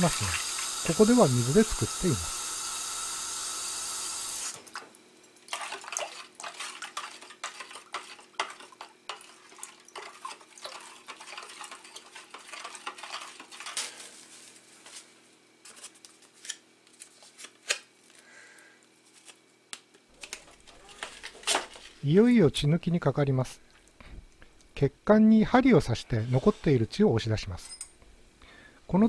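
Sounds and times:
running tap: 0.0s - 4.6s
metal spoon stirring in plastic bowl: 5.5s - 13.9s.

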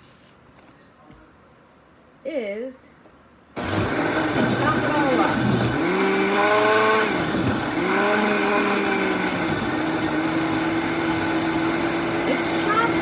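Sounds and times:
blender motor running: 3.6s - 13.0s.

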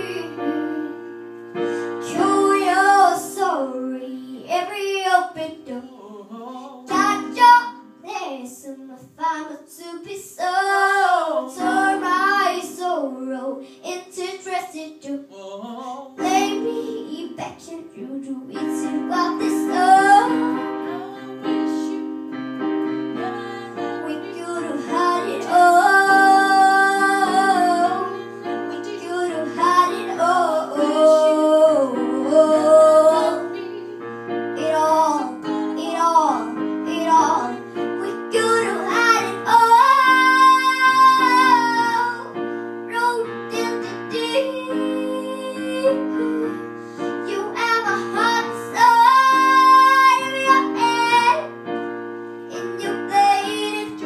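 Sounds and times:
girl singing: 0.0s - 1.1s, 1.8s - 22.2s, 23.1s - 34.0s, 34.6s - 51.5s, 52.5s - 54.0s
instrumental accompaniment: 16.2s - 54.0s.

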